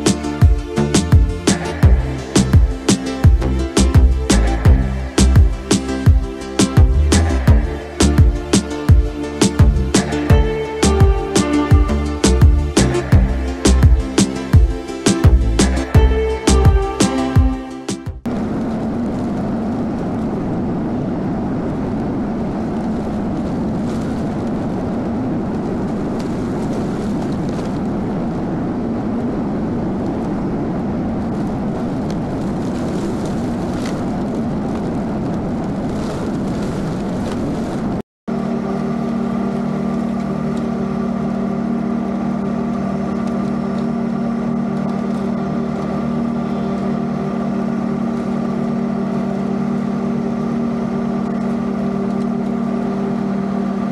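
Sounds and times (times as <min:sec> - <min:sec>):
riding mower engine running: 0:00.0 - 0:19.3, 0:38.3 - 0:53.9.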